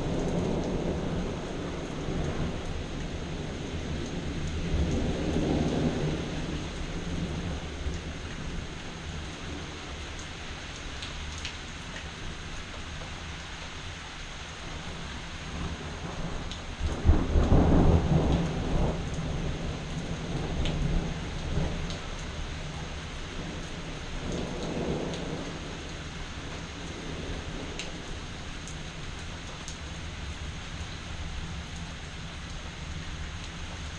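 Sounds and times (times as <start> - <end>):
thunder rumbling: 0.0 - 10.1, 14.8 - 28.2
steady rain: 0.0 - 33.9.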